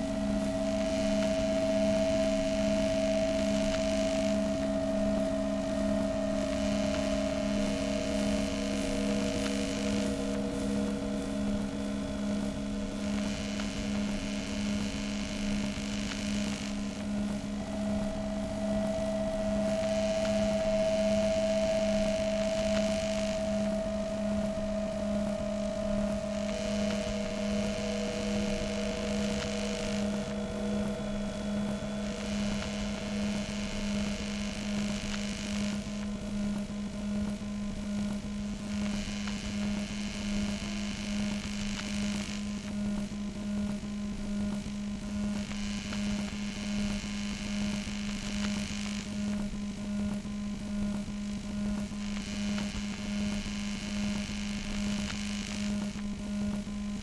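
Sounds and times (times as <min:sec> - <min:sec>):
low drone: 0:00.0 - 0:15.7, 0:16.3 - 0:35.1.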